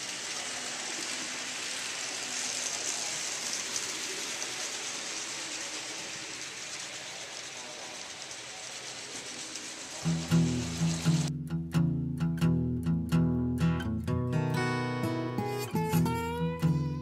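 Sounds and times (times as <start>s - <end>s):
model train wheels on rails: 0.0s - 11.3s.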